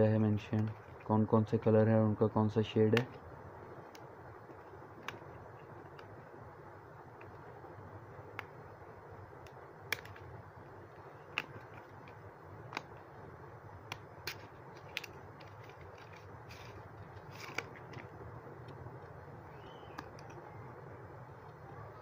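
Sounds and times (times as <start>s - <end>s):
sharp plastic clicks: 2.9s - 6.2s, 9.4s - 10.4s, 11.0s - 13.2s, 13.8s - 20.5s
plastic scraping on cardboard: 13.9s - 18.1s.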